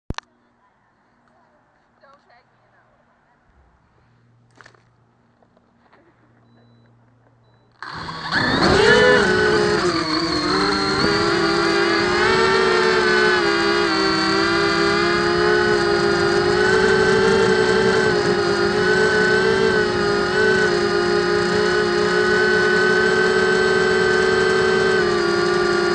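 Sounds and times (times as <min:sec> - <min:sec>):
quadcopter motors whining: 0:07.8 - 0:25.9.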